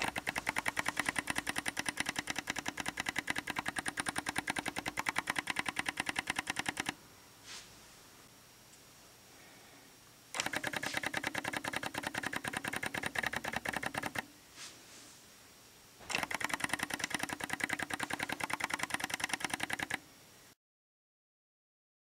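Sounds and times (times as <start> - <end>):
lens focus motor clicking: 10.4 - 14.2, 16.0 - 20.0.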